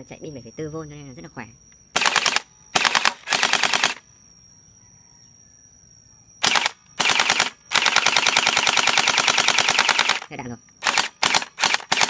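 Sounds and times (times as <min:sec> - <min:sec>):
toy gun firing rapid clacks: 0:02.0 - 0:04.0, 0:06.4 - 0:12.0.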